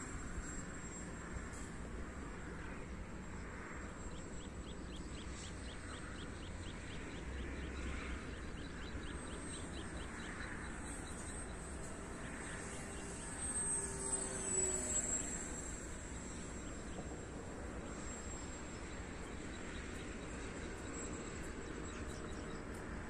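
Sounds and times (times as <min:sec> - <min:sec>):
electric motor whine: 0:09.6 - 0:23.0.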